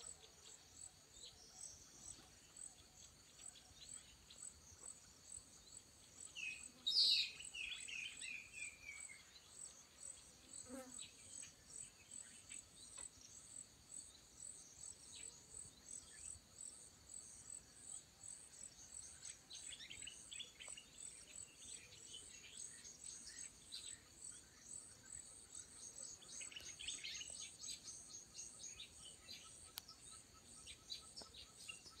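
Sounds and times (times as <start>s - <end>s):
insects pulsing call: 14.4s - 32.0s.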